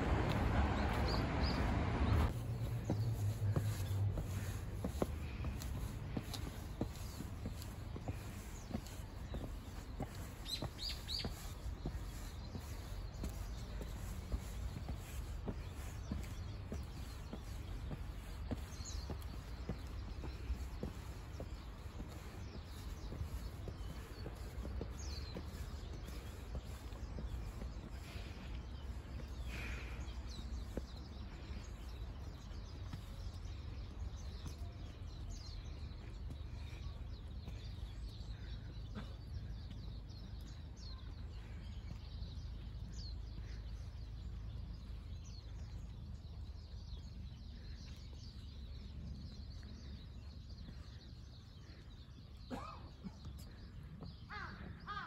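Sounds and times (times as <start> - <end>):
steady low rumble: 0.0 - 39.2
small birds chirping: 0.0 - 55.0
crow cawing: 54.3 - 55.0.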